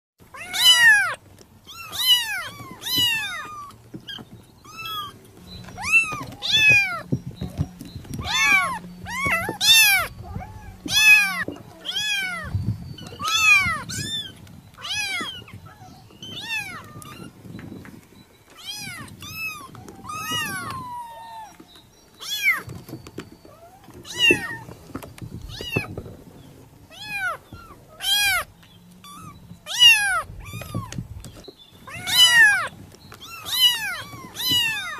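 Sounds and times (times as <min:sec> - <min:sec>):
cat meowing: 0:00.3 - 0:05.2, 0:05.8 - 0:07.1, 0:08.2 - 0:12.5, 0:13.1 - 0:17.3, 0:18.6 - 0:21.6, 0:26.9 - 0:31.0, 0:31.9 - 0:34.9.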